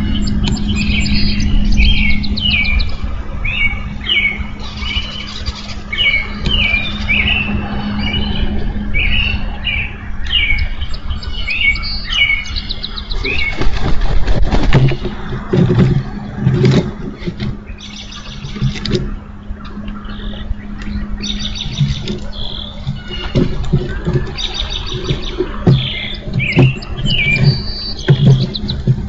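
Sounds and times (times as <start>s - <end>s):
low hum: 0.0s - 29.0s
songbirds singing: 0.0s - 29.0s
rustling and thumping in nest sticks: 13.2s - 17.8s, 21.6s - 29.0s.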